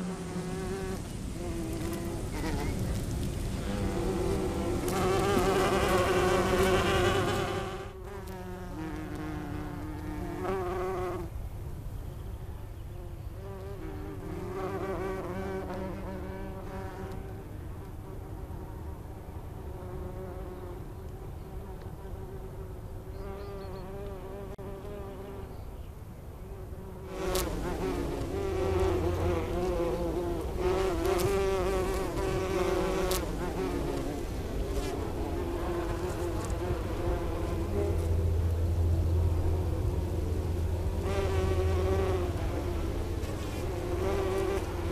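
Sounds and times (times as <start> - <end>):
bumblebees buzzing: 0.0 - 11.4, 12.9 - 25.6, 26.4 - 44.9.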